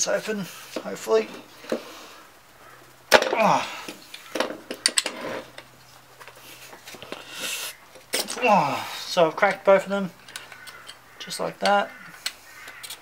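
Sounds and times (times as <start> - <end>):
person grunting: 3.2 - 4.0, 8.3 - 9.1.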